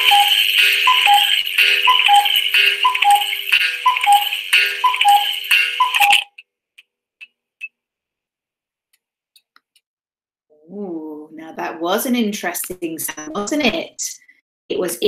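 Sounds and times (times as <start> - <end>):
cuckoo clock calling: 0.0 - 6.4.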